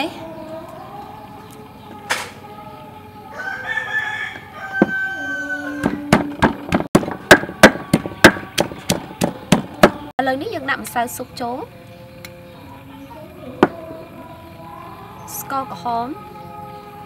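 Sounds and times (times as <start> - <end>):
rooster crowing: 3.2 - 6.4
wooden pestle pounding in mortar: 5.8 - 10.1.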